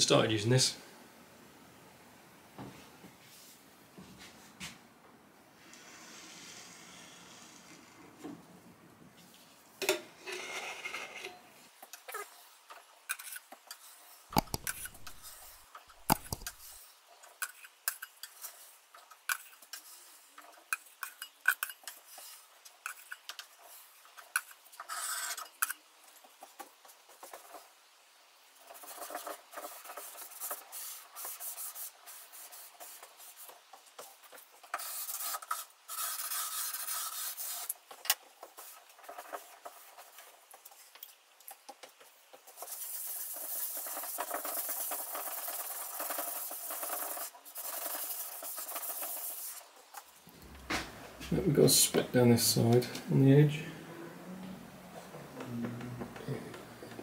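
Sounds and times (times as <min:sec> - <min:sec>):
scraper scraping wood: 0:14.4 - 0:16.8.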